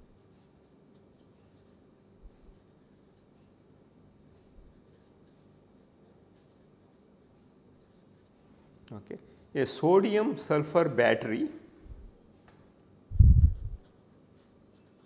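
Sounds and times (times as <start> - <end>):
marker pen scratching on paper: 0.0 - 3.5, 4.6 - 8.4, 13.4 - 15.0
soft low bumps: 13.1 - 13.8.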